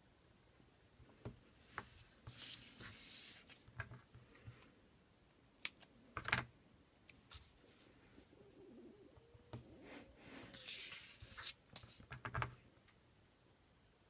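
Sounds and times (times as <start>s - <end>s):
rustling of cardstock and tape: 9.9s - 12.3s.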